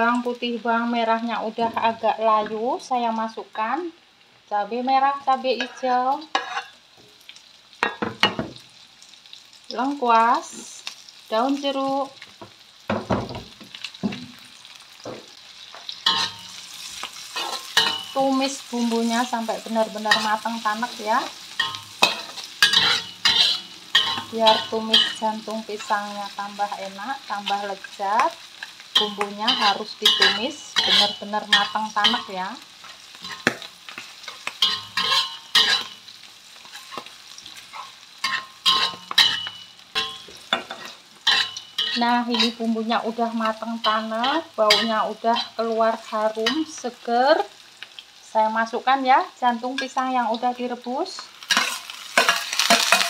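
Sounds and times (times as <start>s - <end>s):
aromatics sizzling in hot oil: 0.0s - 53.0s
spatula scraping a wok: 5.6s - 6.8s, 15.8s - 42.7s, 43.4s - 46.9s, 51.4s - 53.0s.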